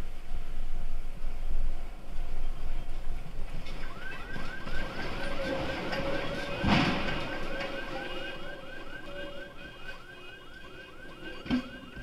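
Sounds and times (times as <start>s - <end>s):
scooter crashing onto road: 3.6s - 8.0s
car alarm chirping: 3.6s - 12.0s.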